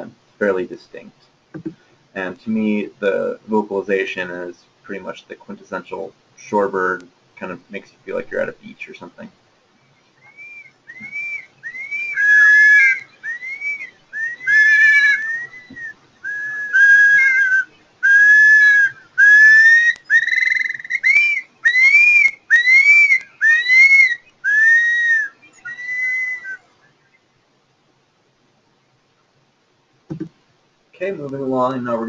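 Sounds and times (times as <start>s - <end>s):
curlew whistled calls: 9.8s - 27.3s.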